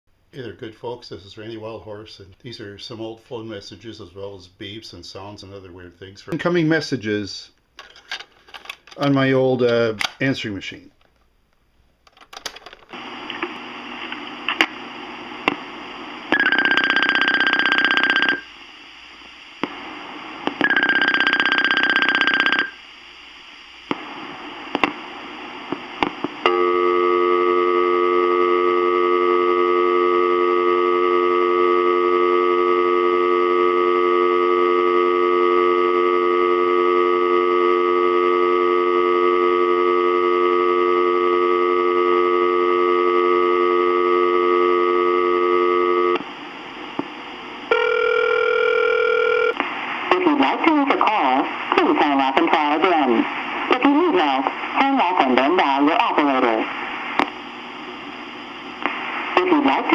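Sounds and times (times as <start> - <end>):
telephone dial tone: 16.3 - 18.4, 20.6 - 22.8, 47.7 - 49.6.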